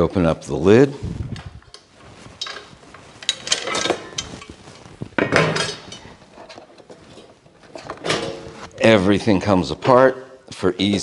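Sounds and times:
metal grill grate knocks and clinks: 5.2 - 6.1.

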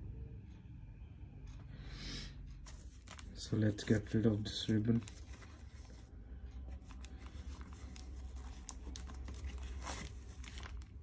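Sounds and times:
ribbon rustling and ticking: 2.5 - 11.0.

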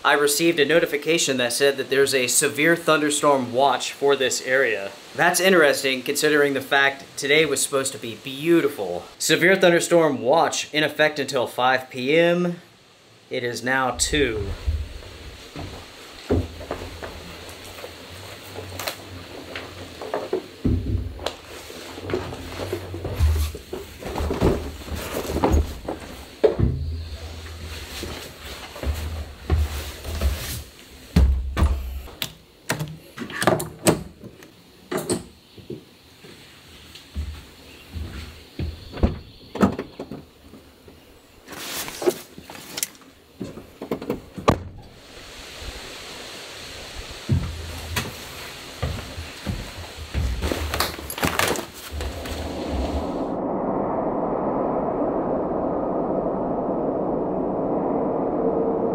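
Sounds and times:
steady hiss: 0.0 - 39.5, 44.8 - 53.4
footsteps on hollow floor: 14.5 - 32.1, 37.1 - 39.2, 47.3 - 53.0
knocks and thumps on hollow floor: 15.5 - 17.3, 20.1 - 21.2, 31.2 - 32.0
backpack handling clunks and rustles: 50.3 - 52.0.

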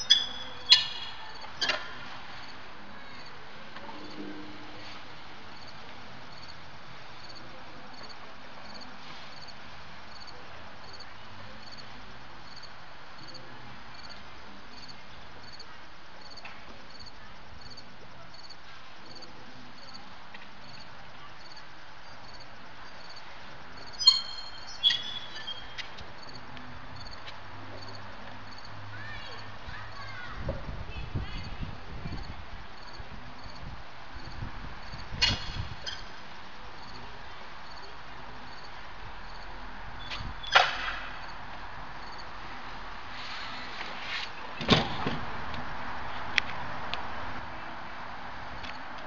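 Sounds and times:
insects chirping: 0.0 - 43.6.

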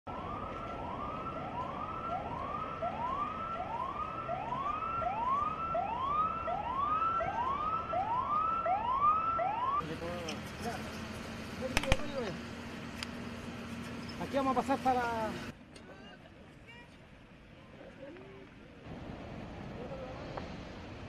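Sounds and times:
fire engine siren sweeping: 0.1 - 10.4.

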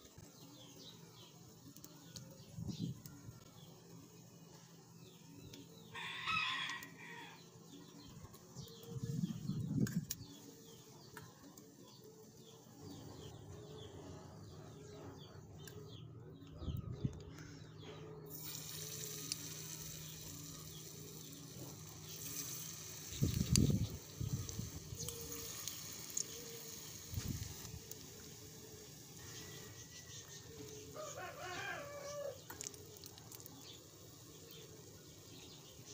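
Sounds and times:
rooster crowing: 5.9 - 7.4, 31.0 - 32.4
hot oil sizzling: 18.3 - 35.9.

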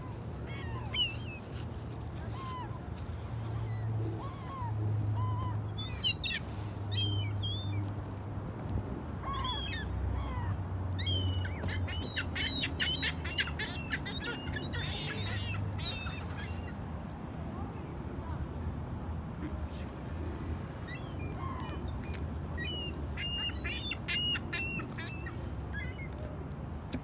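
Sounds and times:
gulls calling: 0.0 - 1.4, 3.6 - 7.9, 9.2 - 16.8, 20.8 - 26.1.

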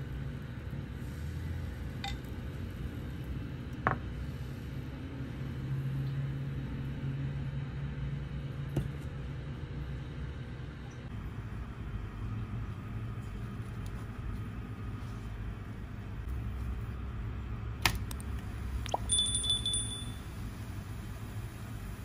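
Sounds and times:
stove rumble: 0.0 - 22.0
bell-like ding: 19.1 - 20.2.

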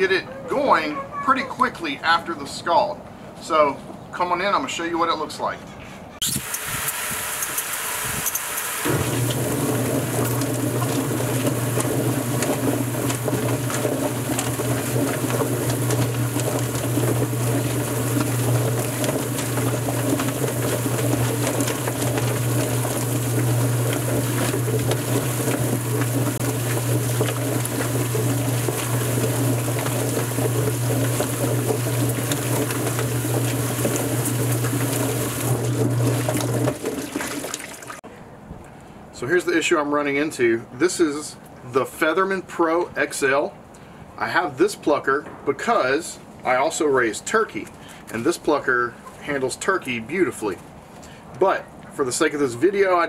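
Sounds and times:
water spray hissing: 6.2 - 9.4
steady motor hum: 6.3 - 37.7.

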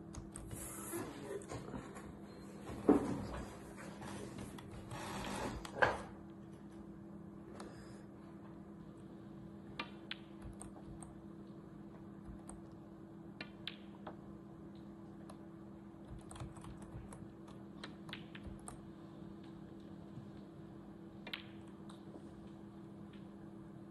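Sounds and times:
low electrical hum: 0.0 - 23.9
typing on keyboard: 9.8 - 11.2, 16.0 - 18.8.

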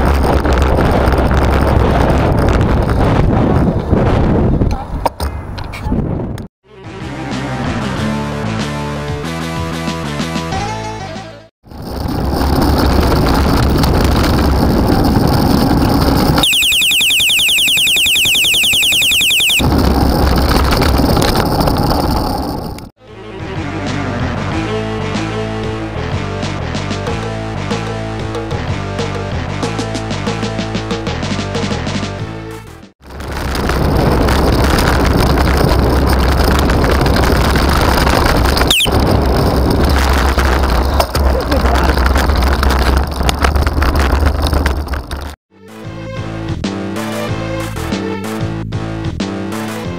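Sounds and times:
wind buffeting microphone: 0.0 - 6.5, 11.7 - 16.4, 33.1 - 45.4
rapid high-pitched chattering: 16.4 - 19.7
brief high squeak: 38.6 - 39.0.

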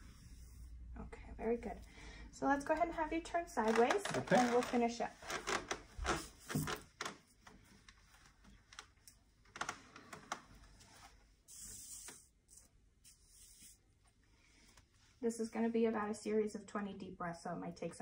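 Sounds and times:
wooden chair knocks and clicks: 5.4 - 7.2
soft hiss: 10.7 - 15.5.

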